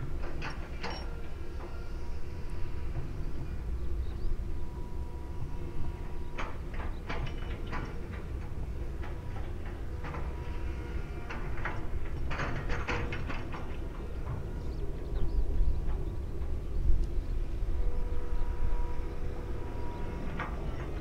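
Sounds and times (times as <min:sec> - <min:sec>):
jet engines rumbling: 0:00.0 - 0:21.0.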